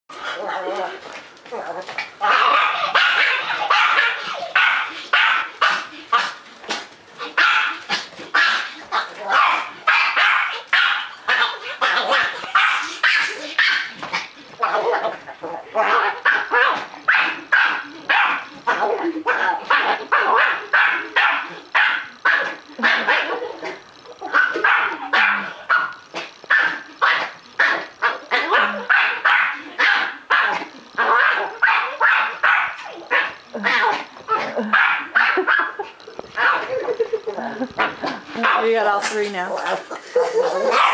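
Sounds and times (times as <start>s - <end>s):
dog barking: 2.2s - 6.3s, 7.4s - 7.8s, 9.3s - 13.9s, 15.8s - 18.5s, 19.7s - 23.4s, 24.3s - 27.8s, 28.4s - 34.0s, 34.7s - 35.8s, 36.4s - 36.7s, 40.5s - 40.9s.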